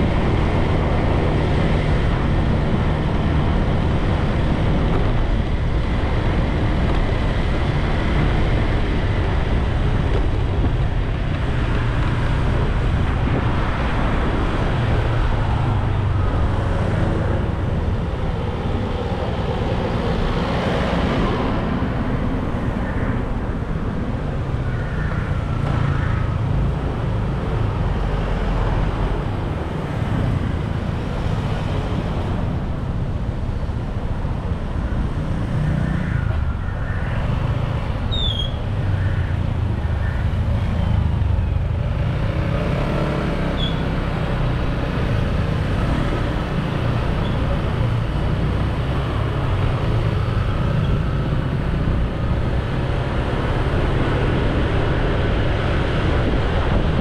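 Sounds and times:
cars moving in traffic: 0:00.0 - 0:57.0
motorbike road noise: 0:00.0 - 0:57.0
wind rumble on microphone: 0:00.0 - 0:57.0.

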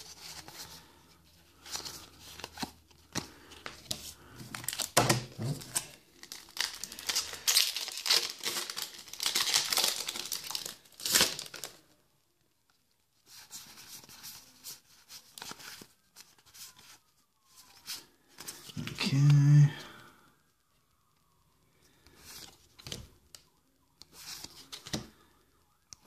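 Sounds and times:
foil wrapper crinkling and tearing: 0:05.6 - 0:11.8.

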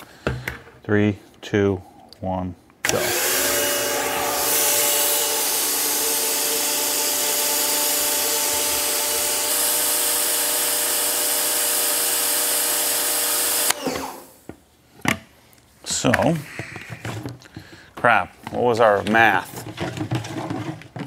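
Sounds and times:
pressure washer motor humming: 0:02.9 - 0:14.3.

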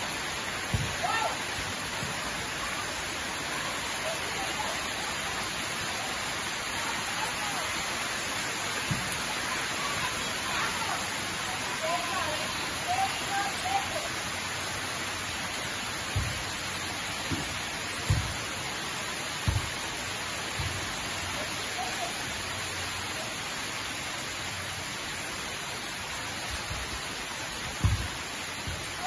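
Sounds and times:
pouring rain: 0:00.0 - 0:29.0
dull thumps of volleyball: 0:00.7 - 0:01.0, 0:17.3 - 0:18.4, 0:19.4 - 0:19.8, 0:27.8 - 0:28.1.

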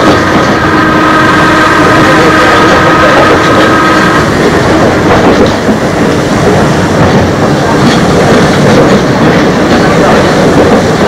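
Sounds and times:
train motors and wheels rumbling: 0:00.0 - 0:11.0
clicking over rail joints: 0:04.3 - 0:11.0.

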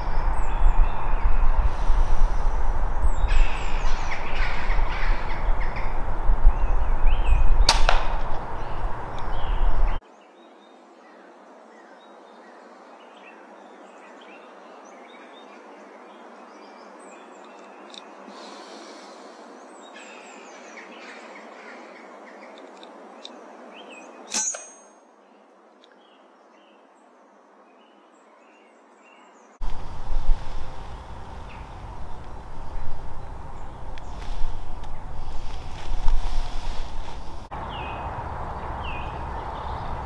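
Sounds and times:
birdsong with chirps: 0:00.0 - 0:40.0
air rifle shot: 0:07.6 - 0:08.4.

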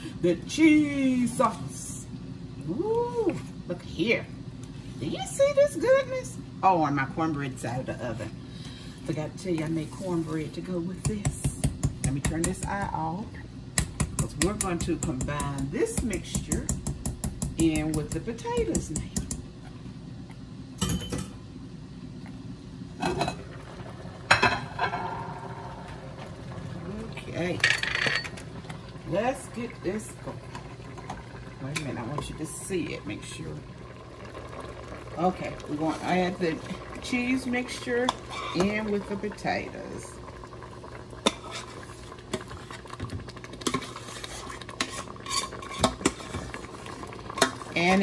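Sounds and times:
metal pots and utensils clanking: 0:24.3 - 0:25.4, 0:43.6 - 0:46.5.

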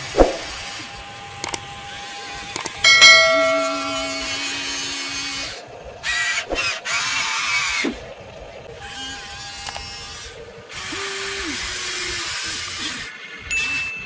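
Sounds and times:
toy excavator motors whirring: 0:00.0 - 0:02.8, 0:08.7 - 0:14.0.

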